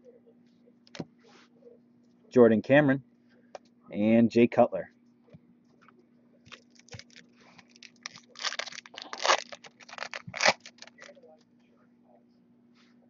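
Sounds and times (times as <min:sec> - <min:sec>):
foil wrapper tearing and crinkling: 0:06.5 - 0:11.1.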